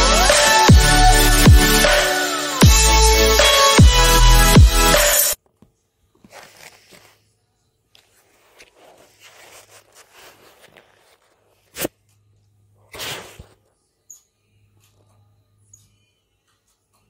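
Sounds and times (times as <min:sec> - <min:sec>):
handling noise rustling: 0:05.4 - 0:11.9.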